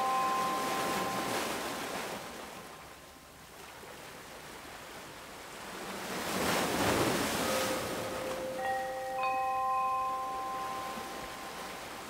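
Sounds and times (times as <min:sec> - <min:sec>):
wind chime tones: 0:00.0 - 0:01.8, 0:07.4 - 0:12.0
ocean surf waves: 0:00.0 - 0:12.0.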